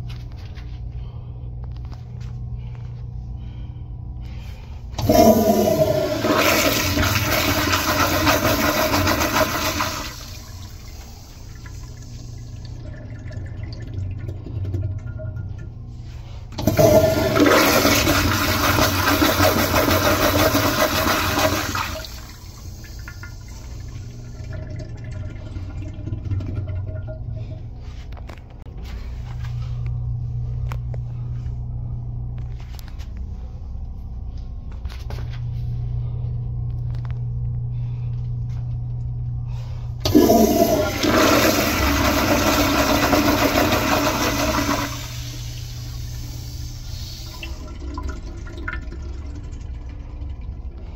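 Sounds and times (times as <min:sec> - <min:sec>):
steady low hum: 0:00.0 - 0:50.9
toilet flushing: 0:05.0 - 0:28.0, 0:39.5 - 0:50.9.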